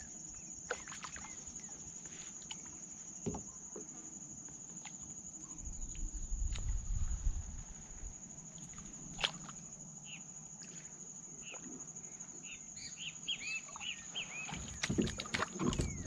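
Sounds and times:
knocks and rustles: 3.2s - 3.9s, 14.5s - 16.0s
bird chirping: 12.4s - 16.0s.

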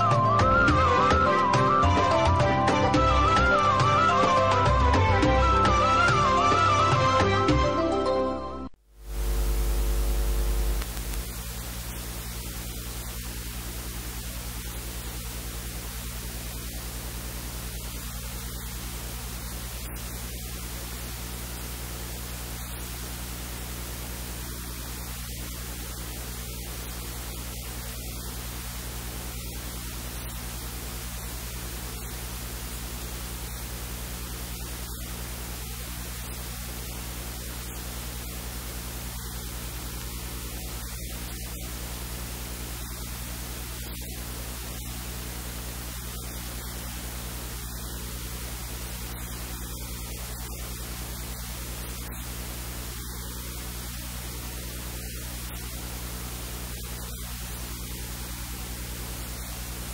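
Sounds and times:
constant hiss: 8.8s - 59.9s
electrical hum: 8.8s - 59.9s.

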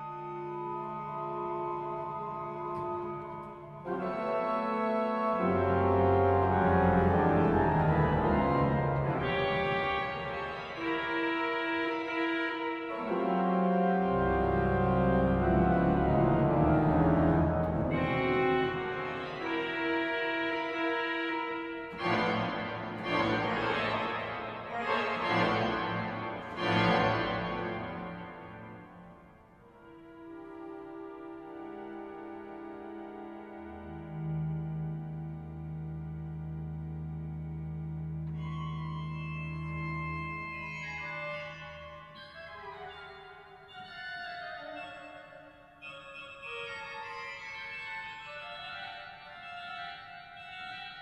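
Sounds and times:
deep organ pedal notes: 0.0s - 11.0s, 12.9s - 19.7s, 30.4s - 42.9s
pipe organ chords: 0.0s - 51.0s.

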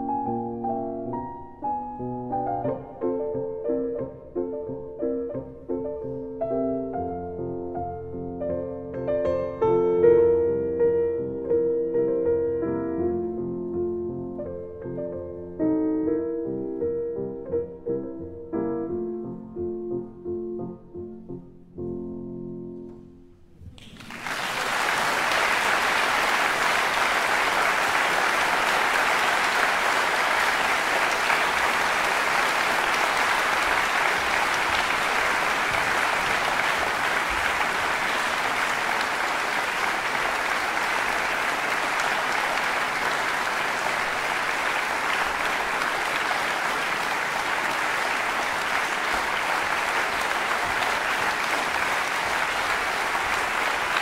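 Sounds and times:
audience applause: 23.7s - 54.0s.

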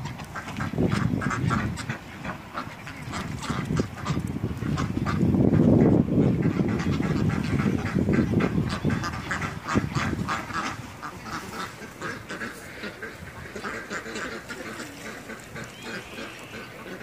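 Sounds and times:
ducks quacking: 0.0s - 17.0s.

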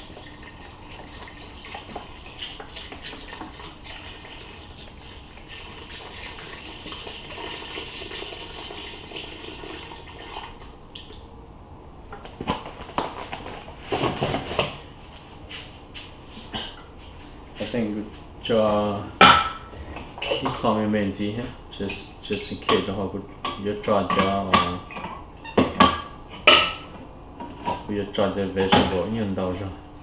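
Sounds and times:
broth pouring into a pot: 3.1s - 10.6s.

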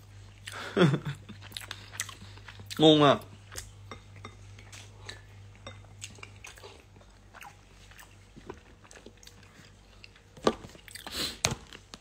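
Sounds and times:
low steady hum: 0.0s - 12.0s
chewing crunches: 1.3s - 3.8s.

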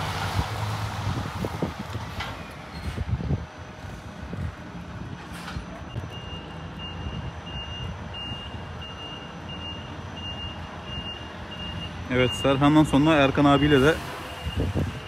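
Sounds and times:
truck engine rumble: 0.0s - 15.0s
reversing alarm beeping: 5.3s - 15.0s.

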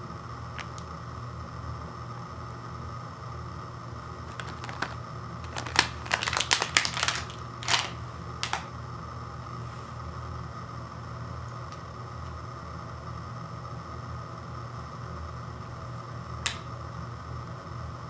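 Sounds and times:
steady low hum: 0.0s - 18.0s
plastic package crinkling: 4.2s - 8.7s.

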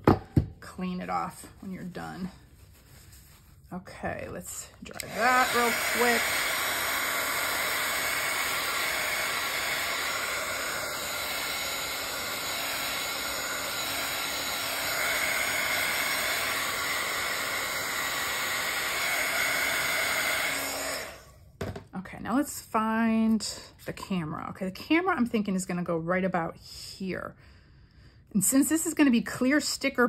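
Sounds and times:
heat tool blowing air: 4.8s - 21.4s.

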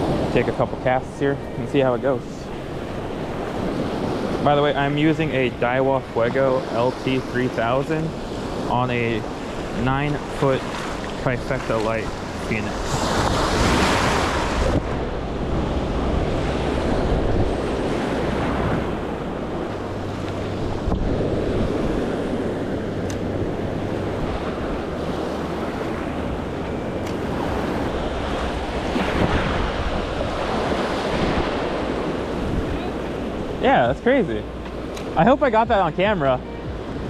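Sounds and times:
waves breaking on beach: 0.0s - 37.0s
wind buffeting microphone: 7.6s - 37.0s.

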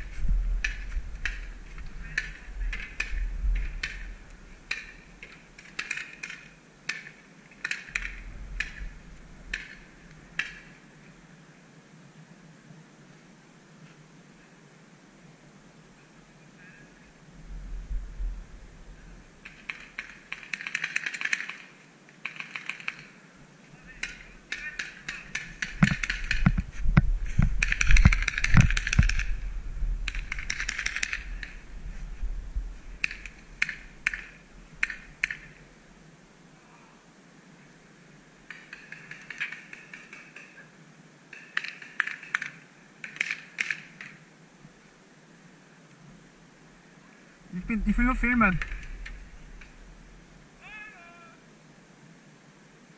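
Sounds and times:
paintball guns popping: 4.7s - 8.8s, 19.4s - 23.1s, 24.0s - 26.6s, 27.5s - 29.3s, 38.5s - 40.5s, 41.3s - 44.2s.

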